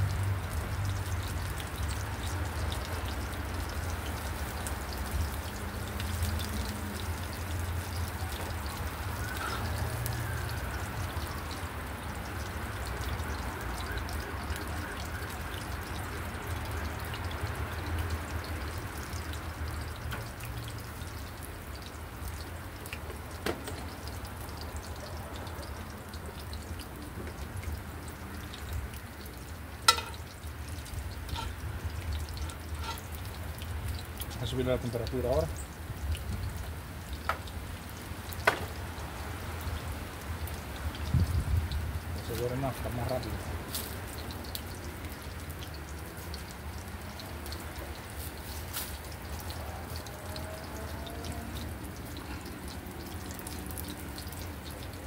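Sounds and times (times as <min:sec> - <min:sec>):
oil sizzling in a frying pan: 0:00.0 - 0:55.0.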